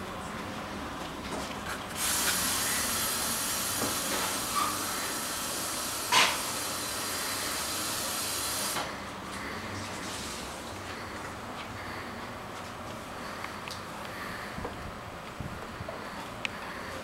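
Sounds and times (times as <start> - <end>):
carpet cleaner hissing: 1.9 - 9.0.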